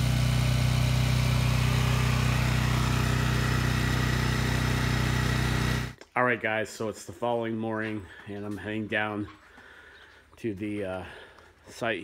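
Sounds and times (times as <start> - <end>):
small gasoline engine idling: 0.0 - 6.0.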